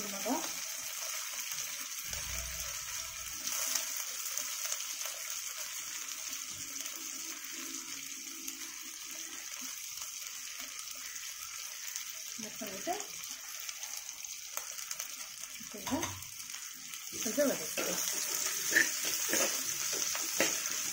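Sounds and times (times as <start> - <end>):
spices sizzling in oil: 0.0 - 20.9.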